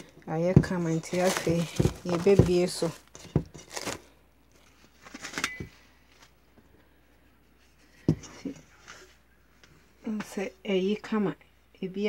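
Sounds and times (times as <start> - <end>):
plastic cling film crinkling: 0.0 - 6.4.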